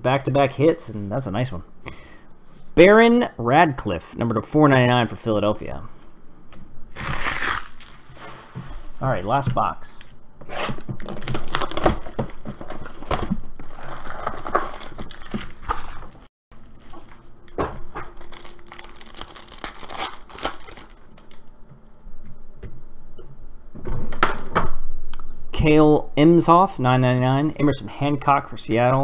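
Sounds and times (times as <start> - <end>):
foil packs ripping and crinkling: 7.0 - 8.0, 11.0 - 12.2, 13.0 - 16.1, 18.0 - 21.4.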